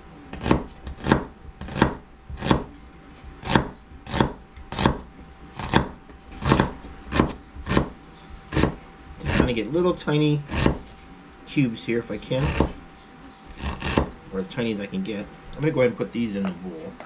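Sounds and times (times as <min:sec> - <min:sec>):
knife slicing onion on board: 0:00.3 - 0:09.6, 0:10.4 - 0:10.9, 0:12.4 - 0:12.8, 0:13.6 - 0:14.2.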